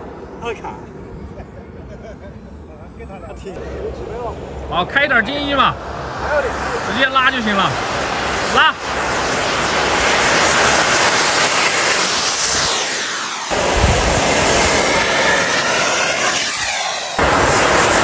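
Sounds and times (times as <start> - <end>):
model jet whine flying past: 0.0 - 18.0.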